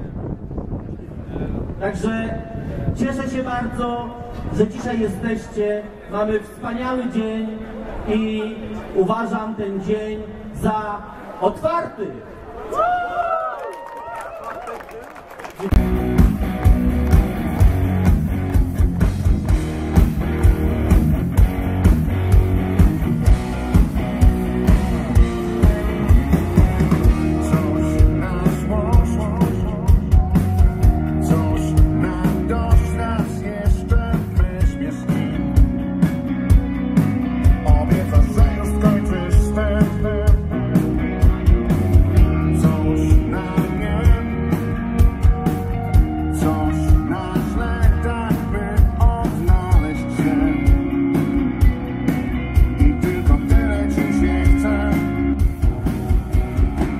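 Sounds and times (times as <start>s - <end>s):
electric guitars: 15.5s - 56.9s
steady drumbeat: 15.7s - 56.9s
man singing: 25.1s - 35.8s, 37.4s - 40.8s, 42.1s - 45.1s, 46.1s - 51.8s, 52.6s - 55.6s.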